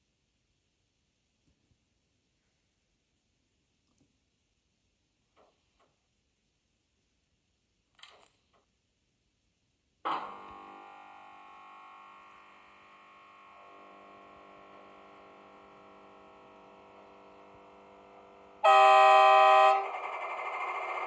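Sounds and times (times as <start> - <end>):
model locomotive hum: 10.1 - 21.0
locomotive horn blast: 18.6 - 20.0.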